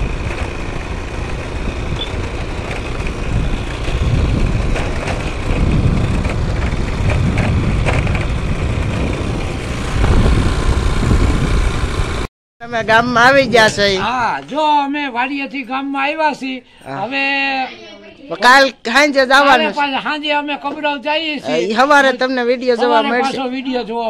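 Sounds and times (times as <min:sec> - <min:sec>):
vehicle engine running: 0:00.0 - 0:12.3
wind rushing over microphone: 0:00.0 - 0:14.3.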